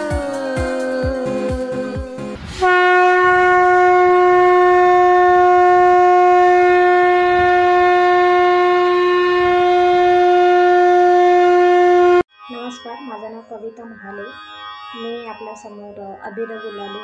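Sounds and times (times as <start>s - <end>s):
long steady horn note: 2.4s - 12.7s.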